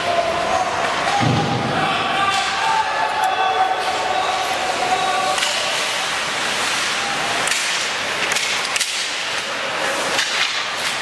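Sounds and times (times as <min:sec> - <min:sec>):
hockey sticks and puck clacking: 0:00.0 - 0:11.0
skate blades scraping ice: 0:03.8 - 0:11.0.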